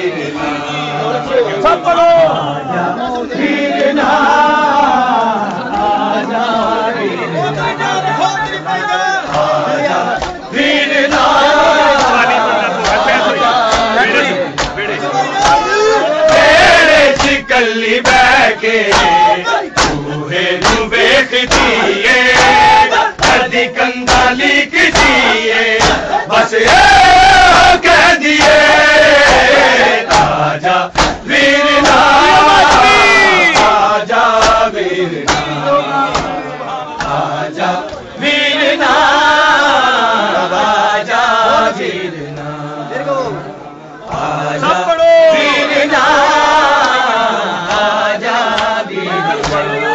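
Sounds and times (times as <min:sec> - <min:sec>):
men chanting in unison: 0:00.0 - 0:49.9
chest slaps: 0:12.0 - 0:14.8, 0:17.1 - 0:17.4, 0:18.9 - 0:23.5, 0:24.1 - 0:26.2, 0:29.2 - 0:32.0, 0:34.4 - 0:35.5, 0:36.1 - 0:36.4.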